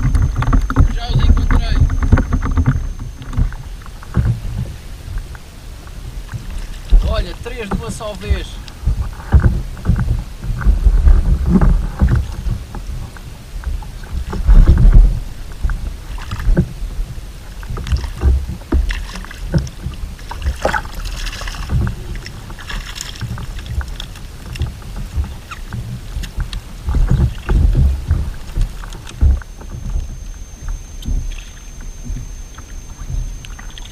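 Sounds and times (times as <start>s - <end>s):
fish splashing in water: 17.5s - 33.9s.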